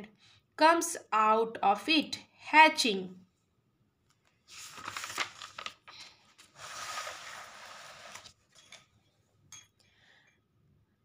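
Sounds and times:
paper page rustling: 0:04.2 - 0:08.6.

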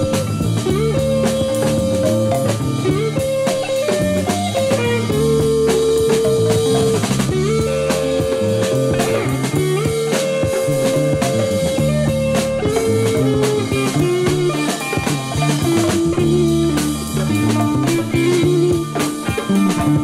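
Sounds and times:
bass line: 0:00.0 - 0:20.0
drum kit with cymbals: 0:00.0 - 0:20.0
rock band playing: 0:00.0 - 0:20.0
sliding lead guitar notes: 0:00.0 - 0:20.0.

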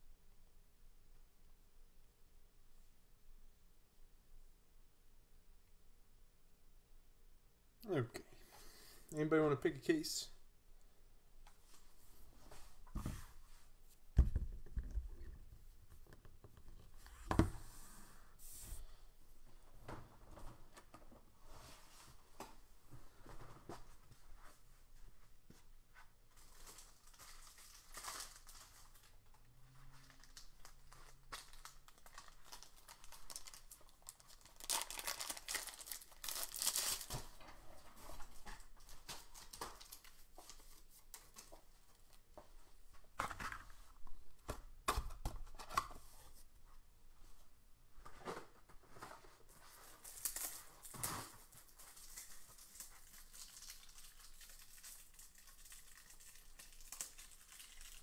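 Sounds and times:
packaging crinkling and tearing: 0:26.4 - 0:37.4, 0:50.0 - 0:58.0.

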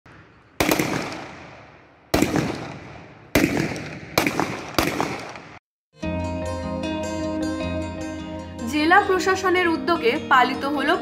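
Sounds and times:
rifle shots echoing: 0:00.1 - 0:05.6.

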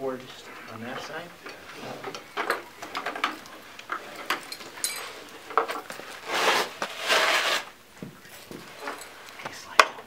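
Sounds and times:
board scraping on carpet: 0:06.2 - 0:07.7.

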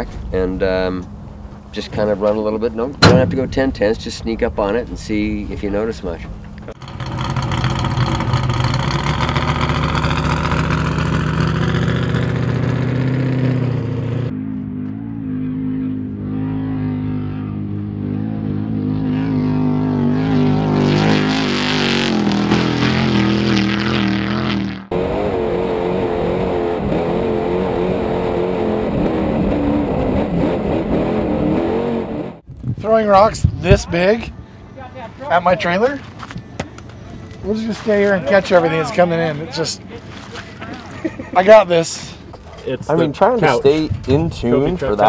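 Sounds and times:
truck engine revving: 0:06.7 - 0:32.4.

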